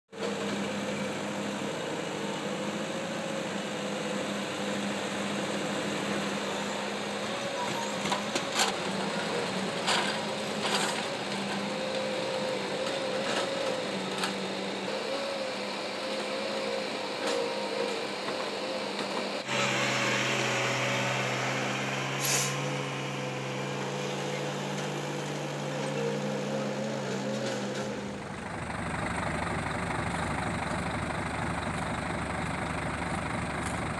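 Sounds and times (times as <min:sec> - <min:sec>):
heavy diesel engines running: 0:00.2 - 0:33.9
air hiss: 0:22.1 - 0:22.8.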